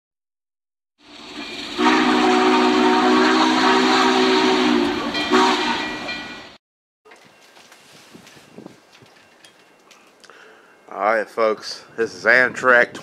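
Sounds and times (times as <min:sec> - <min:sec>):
train whistle chord: 0:01.4 - 0:06.1.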